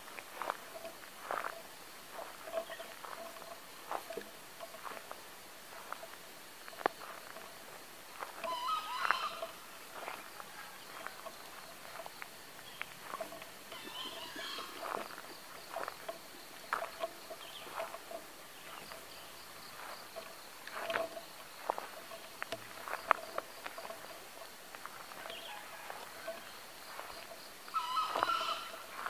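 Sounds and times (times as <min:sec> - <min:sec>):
insects chirring: 0:00.0 - 0:29.0
rustling through grass: 0:00.0 - 0:29.0
junglefowl crowing: 0:08.3 - 0:11.4, 0:13.0 - 0:15.2, 0:25.1 - 0:29.0.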